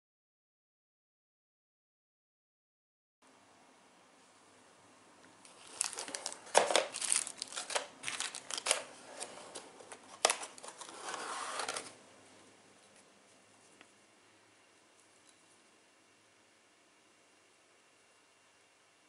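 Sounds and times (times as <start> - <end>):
plastic bags crinkling: 5.5 - 11.9.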